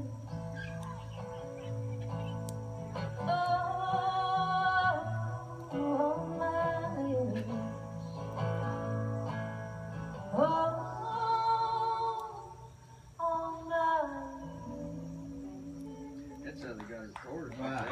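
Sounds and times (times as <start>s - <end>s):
acoustic guitar: 0.0s - 17.9s
women singing together: 3.2s - 7.7s.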